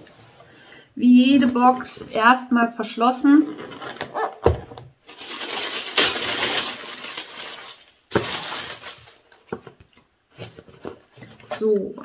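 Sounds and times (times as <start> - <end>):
tissue paper crinkling and rustling: 5.1 - 9.3.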